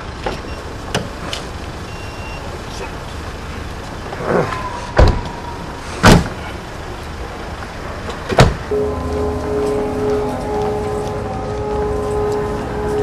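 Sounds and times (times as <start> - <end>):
car doors slamming: 5.0 - 5.4, 6.0 - 6.5, 8.1 - 8.9
background music with held notes: 8.7 - 13.0.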